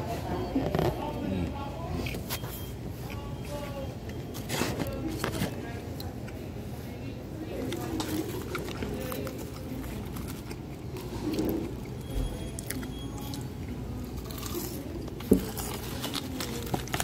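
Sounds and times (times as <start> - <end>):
crunching and chewing: 0.0 - 17.0
hand rummaging through cardboard box: 15.4 - 17.0.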